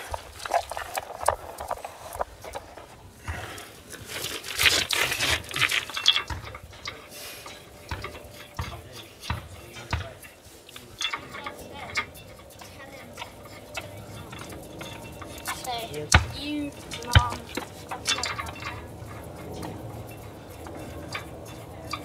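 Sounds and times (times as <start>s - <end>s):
metal clicks and scraping: 0.0s - 22.0s.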